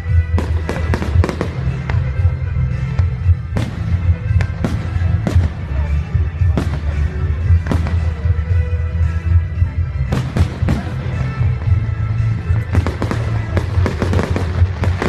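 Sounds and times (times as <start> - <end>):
loud music with heavy bass: 0.0 - 15.0.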